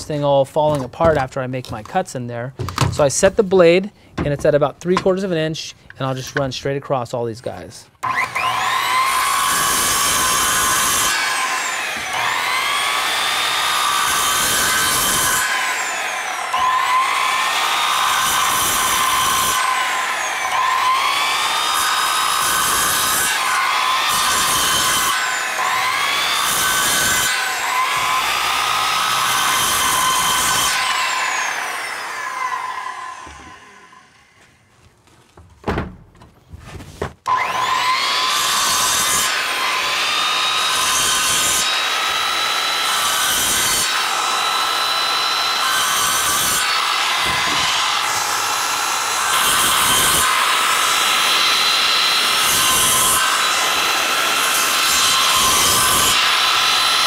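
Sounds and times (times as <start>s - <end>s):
circular saw cutting pipe: 8.0s - 34.4s, 37.3s - 57.0s
knocks: 35.4s - 37.2s.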